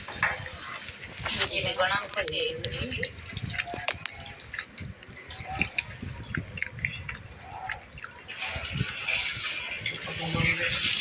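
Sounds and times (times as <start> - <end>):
hand mixing wet batter: 0.2 - 11.0.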